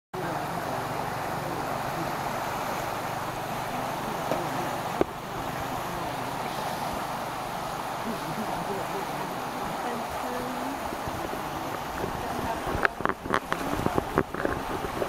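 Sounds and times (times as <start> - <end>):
steady rushing noise: 0.2 - 15.0.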